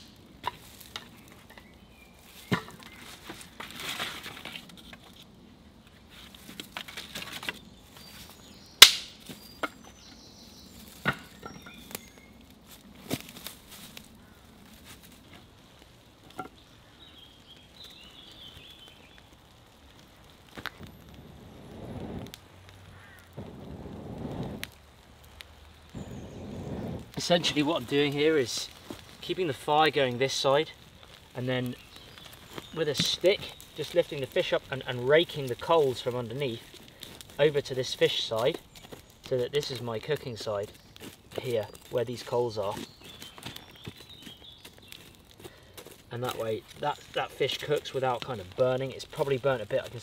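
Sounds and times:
branches rustling: 0.0 - 50.0
dry sticks snapping: 8.8 - 10.1, 10.9 - 21.2, 30.5 - 50.0.

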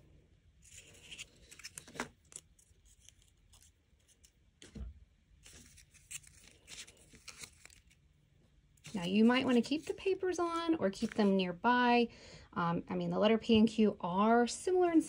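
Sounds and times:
paper rustling: 0.6 - 4.8, 5.4 - 8.0, 8.8 - 11.3.

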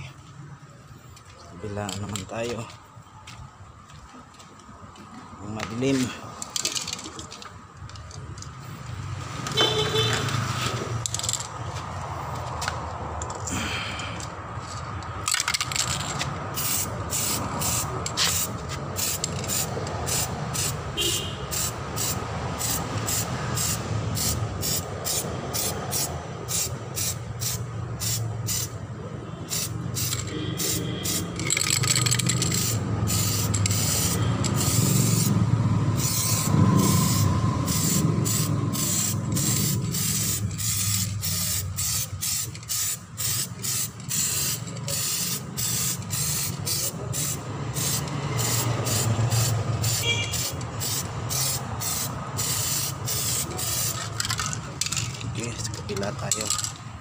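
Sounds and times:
spray paint can hissing: 15.2 - 28.8, 29.5 - 55.1.

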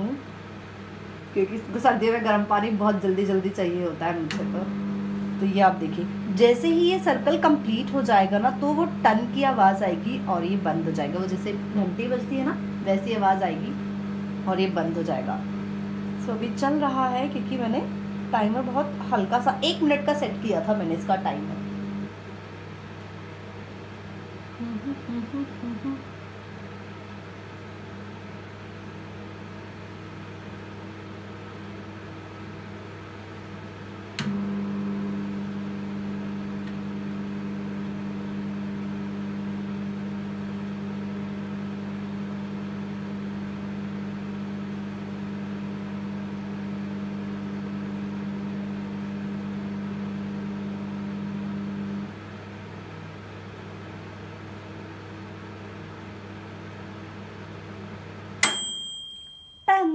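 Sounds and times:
microwave oven humming: 0.0 - 59.9
microwave click: 34.1 - 34.4, 58.4 - 59.2
timer bell ding: 58.4 - 59.9.

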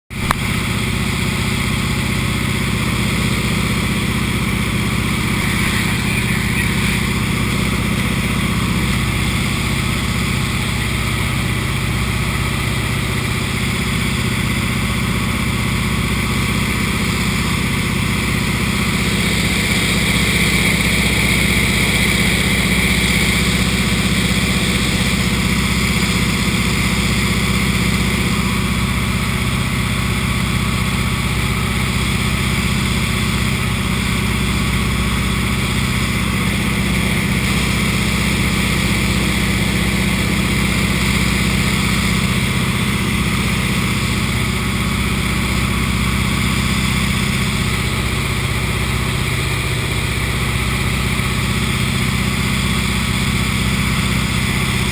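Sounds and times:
plane engine droning: 0.2 - 54.9.

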